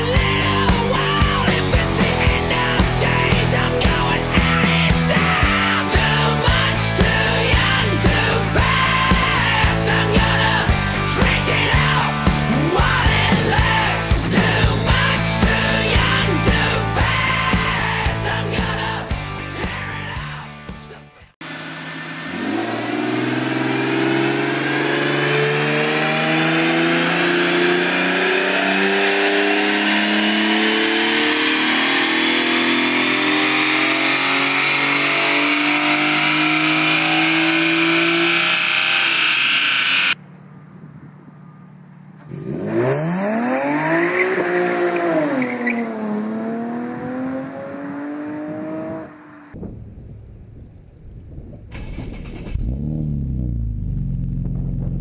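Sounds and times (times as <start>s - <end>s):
car engine revving on a dyno: 21.4s - 40.2s, 42.3s - 49.6s
car accelerating past: 42.3s - 49.6s.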